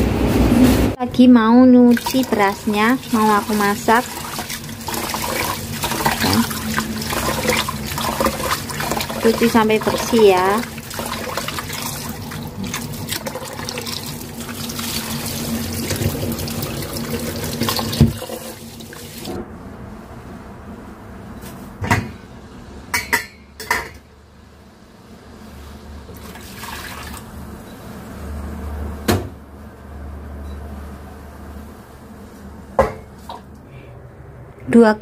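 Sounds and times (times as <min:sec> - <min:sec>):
tap water running into pot: 0:01.9 - 0:19.3.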